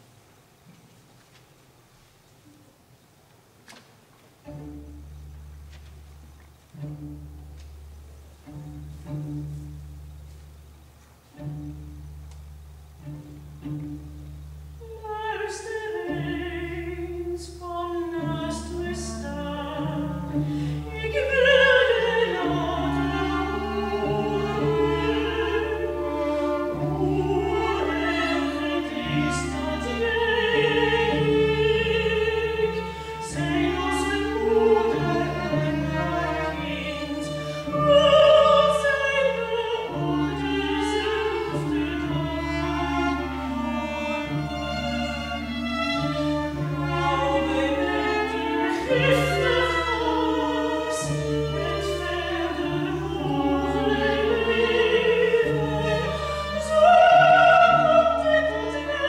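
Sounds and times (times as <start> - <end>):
operatic soprano singing: 14.8 - 43.6, 46.8 - 59.0.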